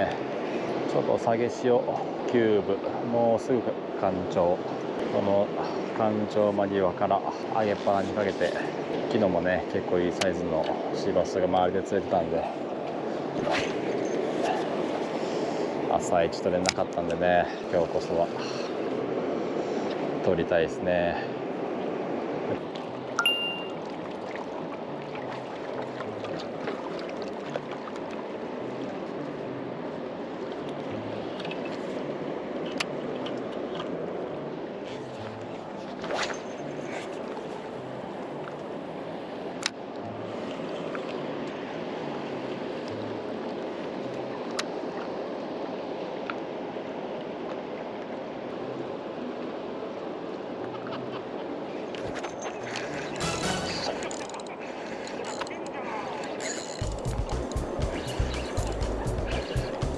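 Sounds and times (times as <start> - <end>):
river water rushing: 0.0 - 59.9
wind: 0.0 - 59.9
faint ticks: 54.0 - 57.6.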